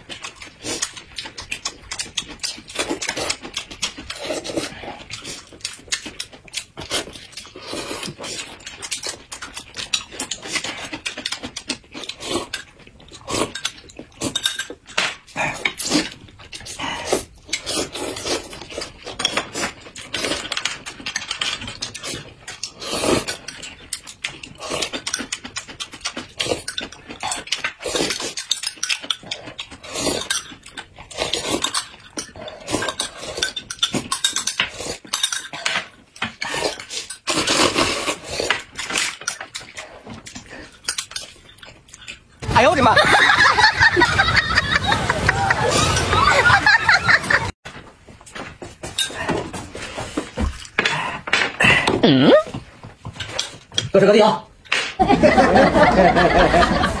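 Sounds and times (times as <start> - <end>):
wet chewing and smacking: 0.0 - 42.4
noodles slurped: 0.2 - 14.4, 15.3 - 20.7, 21.3 - 23.7, 24.4 - 35.3, 36.3 - 42.6.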